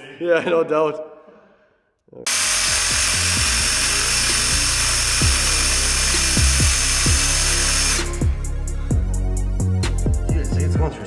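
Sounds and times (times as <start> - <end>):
power drill whining: 2.3 - 8.5
hip-hop music with deep bass: 5.2 - 11.0.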